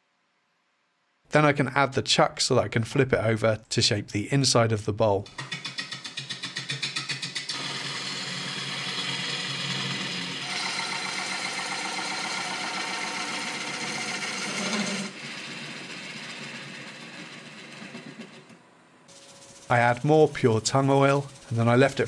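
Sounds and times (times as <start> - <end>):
lathe gouge cutting wood: 7.5 - 18.0
lathe motor hum: 7.5 - 18.4, 19.2 - 21.8.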